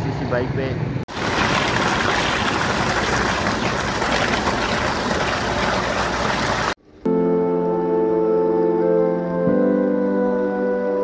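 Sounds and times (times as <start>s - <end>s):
water gushing into concrete channel: 1.1s - 6.8s.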